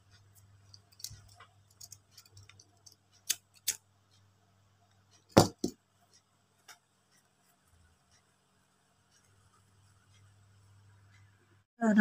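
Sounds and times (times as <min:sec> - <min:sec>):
scissors snipping yarn: 0:00.4 - 0:03.8
knock: 0:05.4 - 0:05.8.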